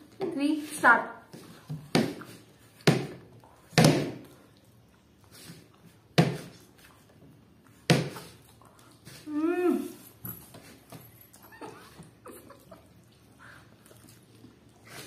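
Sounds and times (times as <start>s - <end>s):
person humming: 9.3s - 10.0s.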